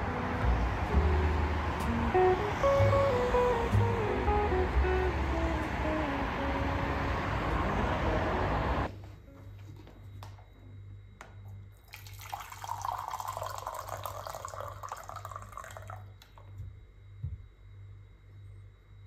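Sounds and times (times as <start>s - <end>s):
hot water pouring into mug: 11.8s - 16.3s.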